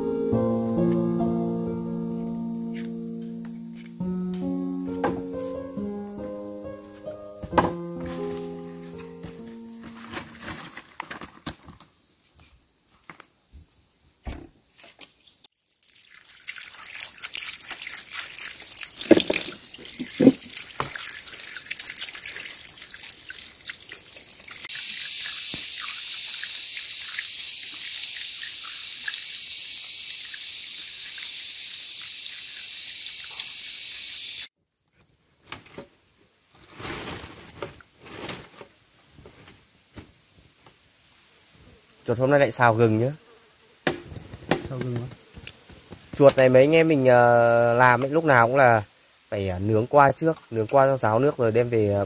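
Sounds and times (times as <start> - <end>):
water pouring and splashing: 14.8 - 34.5.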